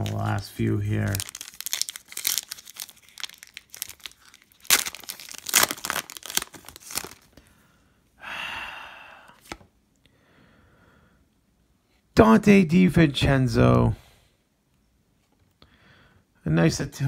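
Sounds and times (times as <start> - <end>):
foil wrapper tearing and crinkling: 0.0 - 7.3.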